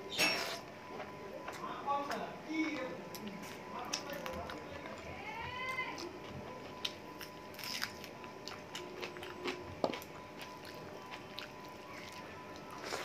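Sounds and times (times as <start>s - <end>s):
chewing: 2.6s - 5.1s, 5.7s - 13.0s.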